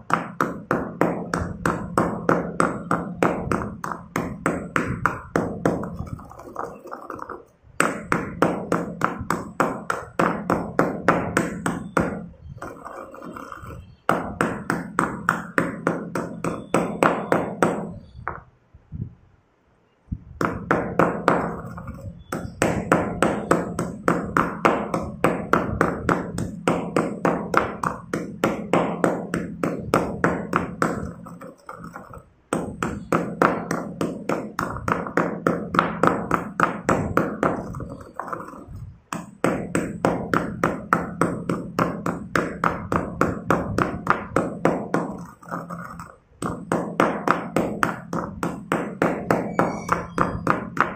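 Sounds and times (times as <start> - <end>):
stone pestle pounding in mortar: 0.0 - 18.4, 20.4 - 50.9.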